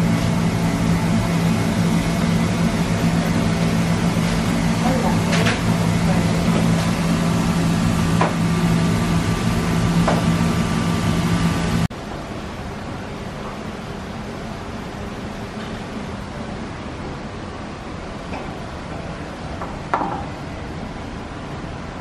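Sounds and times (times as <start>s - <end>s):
kitchen equipment humming: 0.0s - 11.9s.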